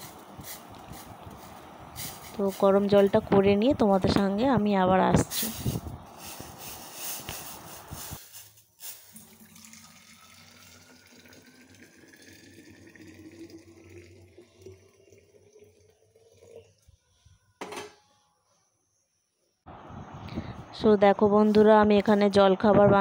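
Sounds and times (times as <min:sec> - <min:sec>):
water pouring into a flask: 0:08.9 - 0:16.9.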